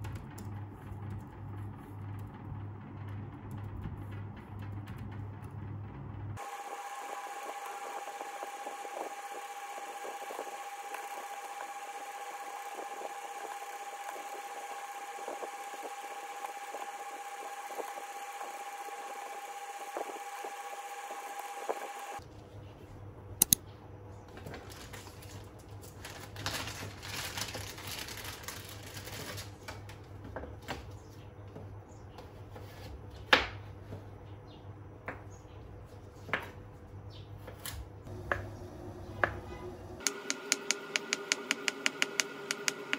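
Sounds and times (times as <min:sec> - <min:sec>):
low hum: 0:38.1 - 0:42.9.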